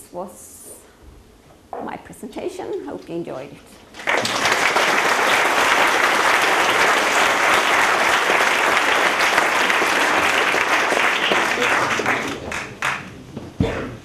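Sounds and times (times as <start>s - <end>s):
audience clapping: 3.9s - 13.3s.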